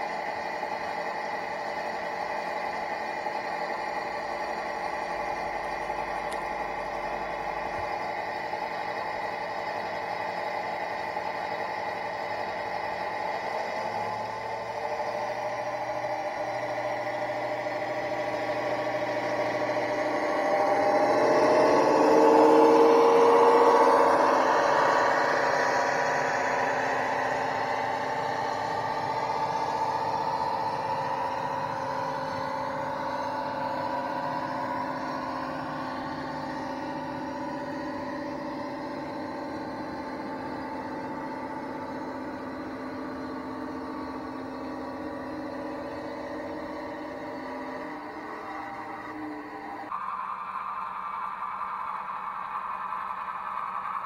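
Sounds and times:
model locomotive diesel engine sound: 0:00.0 - 0:54.0.

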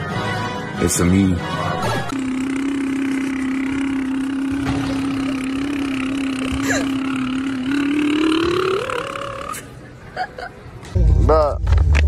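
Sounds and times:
person humming with lips buzzing: 0:02.1 - 0:09.8.

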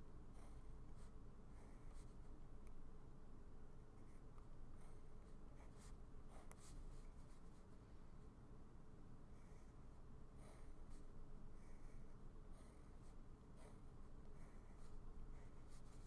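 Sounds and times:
pen scratching on paper: 0:10.4 - 0:16.0.

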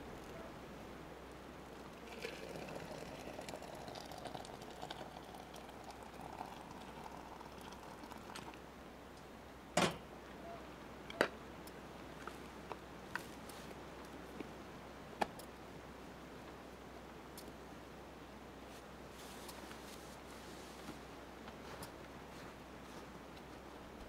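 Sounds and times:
hot water pouring into plastic: 0:01.9 - 0:08.6.

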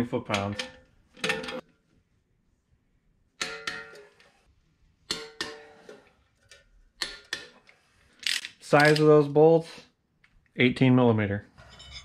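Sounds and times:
metal-on-metal clanks: 0:00.3 - 0:01.7, 0:03.4 - 0:04.3, 0:05.1 - 0:07.7, 0:11.6 - 0:12.0.

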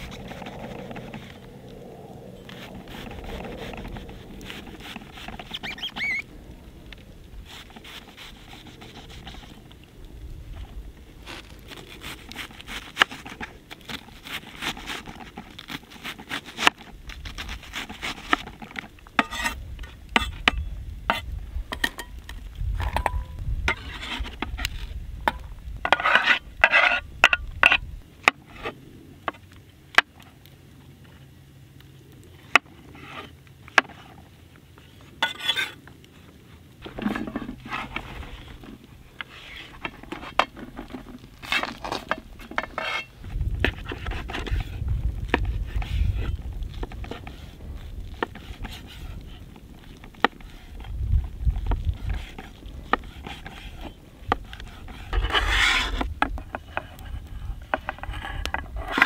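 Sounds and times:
knife blade scraping board: 0:19.2 - 0:19.6, 0:25.9 - 0:27.8, 0:35.2 - 0:35.8, 0:39.2 - 0:44.6, 0:52.0 - 0:57.0.

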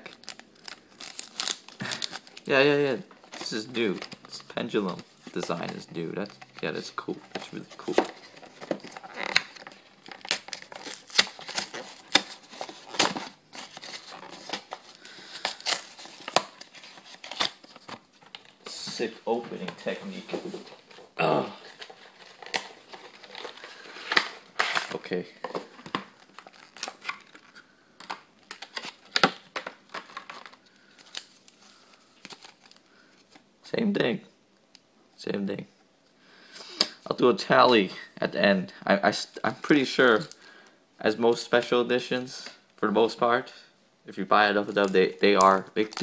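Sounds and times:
foil wrapper crinkling: 0:00.0 - 0:02.5, 0:26.2 - 0:27.6
packaging crinkling and ripping: 0:00.0 - 0:18.6, 0:21.6 - 0:33.4, 0:44.7 - 0:46.0.

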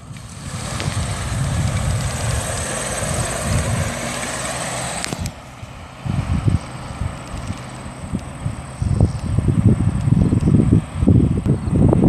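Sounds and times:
pickup truck driving past: 0:00.0 - 0:08.8.

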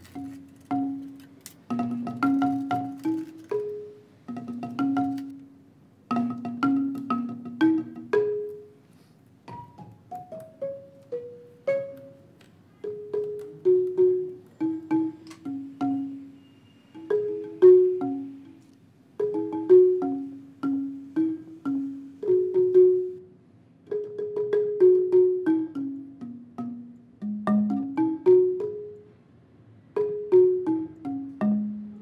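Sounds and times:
plinking melody of struck notes: 0:00.0 - 0:08.8, 0:09.5 - 0:23.2.

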